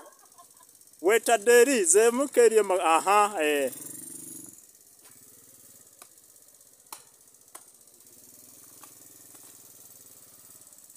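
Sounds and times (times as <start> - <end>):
quad bike engine running: 0.0 - 10.9.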